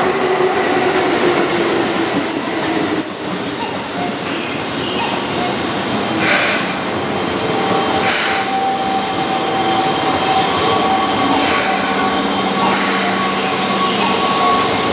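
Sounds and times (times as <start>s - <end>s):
train wheels rumbling on rails: 0.0s - 14.9s.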